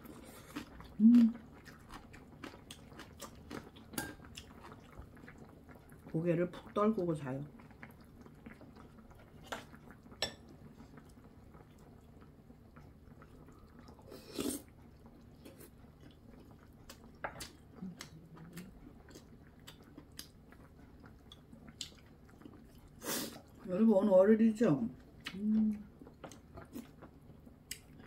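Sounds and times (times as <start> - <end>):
quiet chewing: 0.0 - 6.7, 7.5 - 23.7, 25.0 - 28.0
person slurping: 13.5 - 14.7, 22.8 - 23.5.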